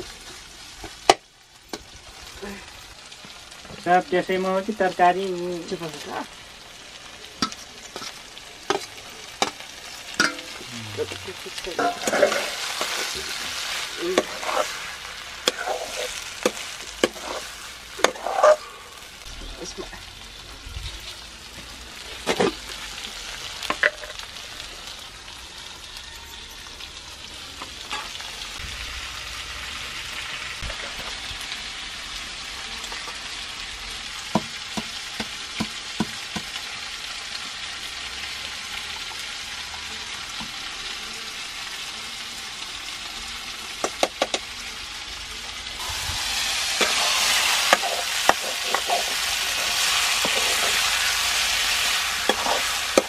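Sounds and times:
pork sizzling in a wok: 0.0s - 53.0s
metal ladle scraping a pan: 10.2s - 19.0s, 45.8s - 53.0s.

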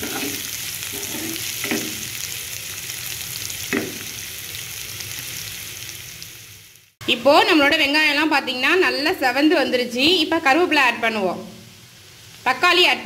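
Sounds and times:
spatula scraping pan: 0.0s - 2.1s
onions sizzling in hot oil: 0.0s - 13.0s.

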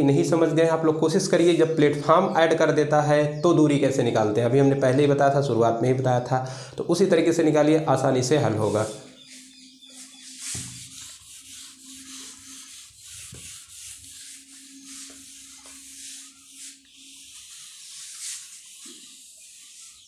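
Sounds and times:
duster rubbing a whiteboard: 8.2s - 20.0s.

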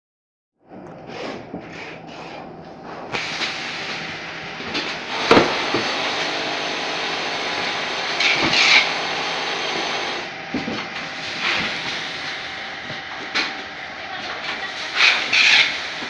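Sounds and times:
packing machine whirring: 0.8s - 16.0s
machine knocks and clatters: 9.9s - 12.0s.

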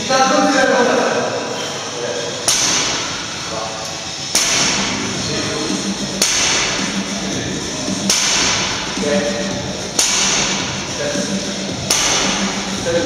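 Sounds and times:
barbell clanking: 2.4s - 3.5s, 4.1s - 13.0s.

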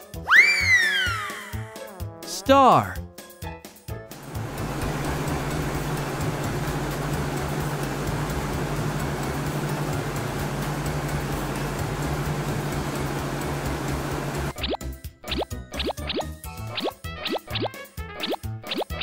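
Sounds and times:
helicopter rotor and engine: 4.2s - 14.5s.

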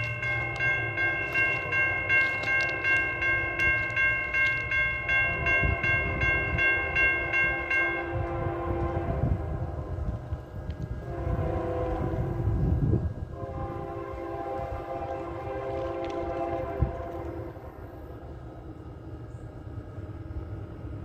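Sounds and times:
railroad crossing bell ringing: 0.0s - 9.4s
train rumble: 0.0s - 21.0s.

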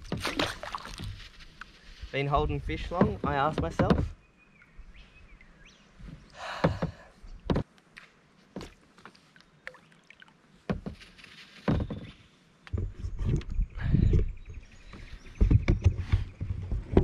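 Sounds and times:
knocks and clicks on plastic kayak: 2.8s - 4.2s, 6.6s - 7.7s, 14.1s - 17.0s
short rustle: 10.9s - 12.2s.

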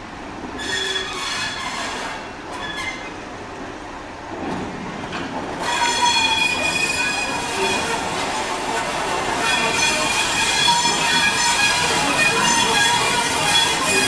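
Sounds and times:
train moving slowly on track: 0.0s - 14.0s
high-pitched wheel squeal: 0.6s - 3.1s, 5.6s - 8.0s, 9.4s - 14.0s.

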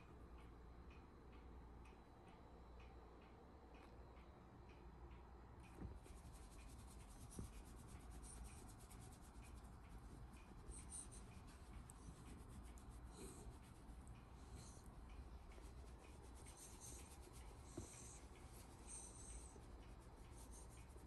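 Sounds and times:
hand stroking dog fur: 6.0s - 21.0s.

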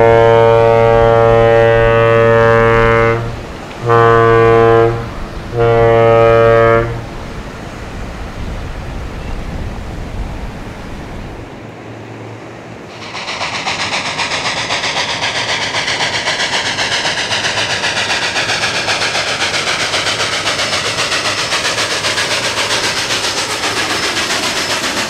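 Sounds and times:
ship's horn blasts: 0.0s - 7.3s
steady background noise: 7.0s - 17.3s.

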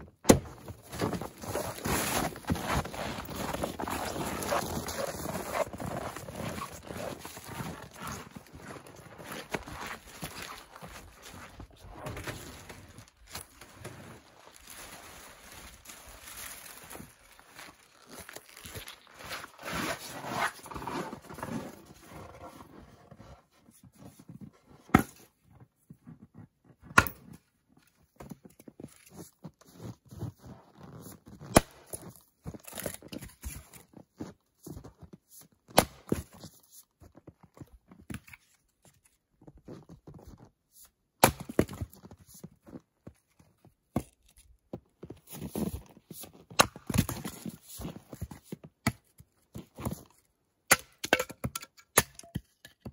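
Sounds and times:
axe splitting firewood: 0.0s - 2.8s, 24.9s - 25.3s, 26.9s - 27.4s, 35.7s - 36.4s, 41.2s - 42.0s, 46.5s - 47.5s, 50.7s - 52.9s.

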